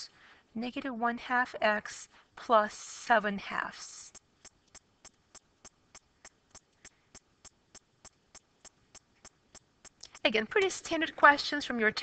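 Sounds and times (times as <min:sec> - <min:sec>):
faint even ticking: 0:04.1 - 0:10.5.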